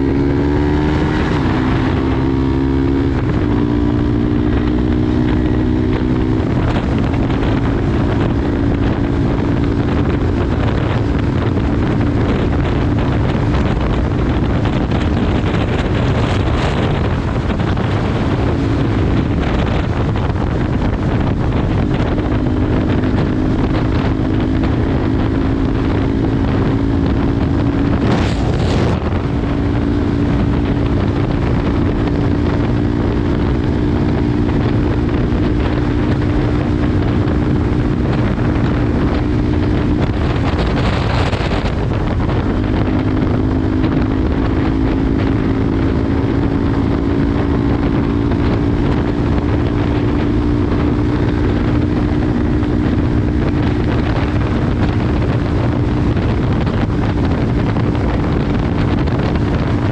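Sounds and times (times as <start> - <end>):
motorcycle engine cruising: 0.0 - 59.9
wind buffeting microphone: 0.0 - 59.9.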